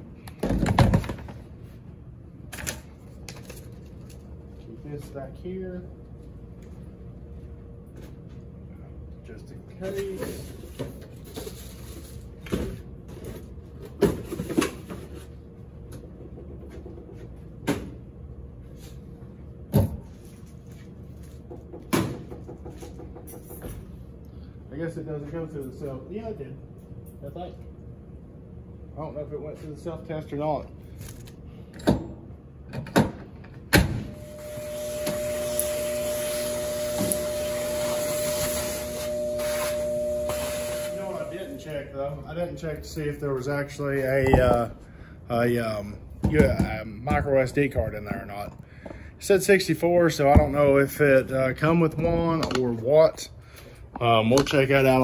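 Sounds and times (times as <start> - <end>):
steady background hum: 0.0 - 55.0
shop vacuum running: 33.7 - 48.0.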